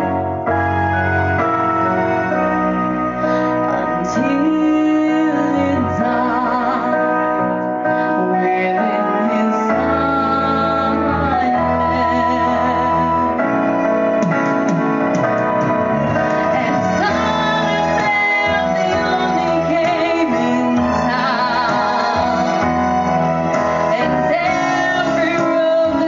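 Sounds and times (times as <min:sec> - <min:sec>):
instrumental backing music: 0:00.0 - 0:26.0
woman singing into a microphone: 0:03.7 - 0:13.4, 0:16.4 - 0:26.0.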